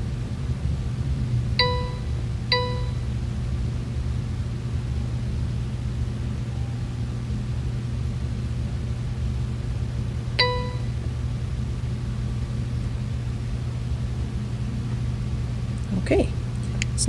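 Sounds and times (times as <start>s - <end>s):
low room hum: 0.0s - 17.0s
time clock beep: 1.6s - 3.1s, 10.4s - 10.9s.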